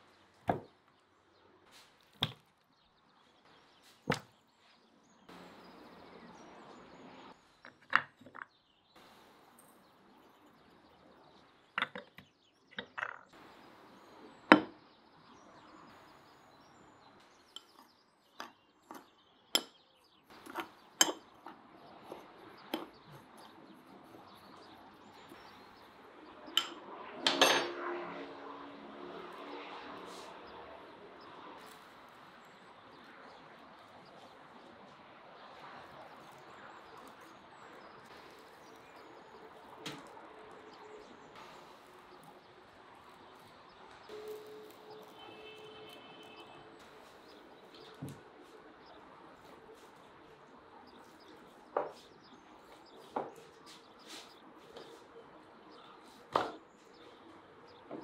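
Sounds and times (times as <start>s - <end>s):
small birds chirping: 0.0s - 27.1s, 28.5s - 58.0s
metal spoon clinking on clay bowl: 26.6s - 27.7s.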